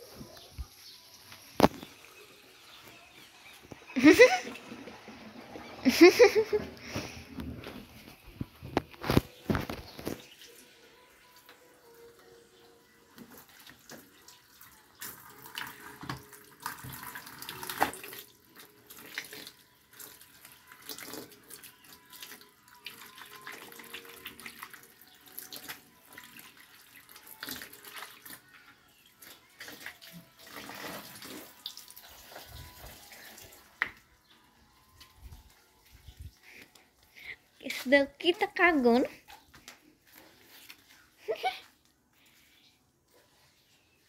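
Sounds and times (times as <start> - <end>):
tap water running: 3.1 - 7.6, 13.2 - 28.4
splashing from hand washing clothes: 29.3 - 33.8.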